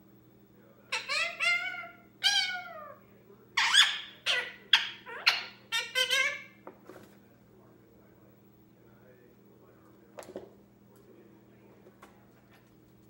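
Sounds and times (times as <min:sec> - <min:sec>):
parakeet squawks and chatter: 0:00.9 - 0:07.1.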